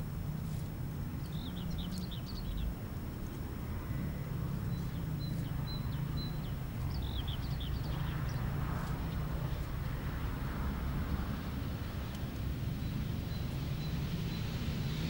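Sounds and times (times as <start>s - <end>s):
small birds chirping: 0.4s - 10.4s.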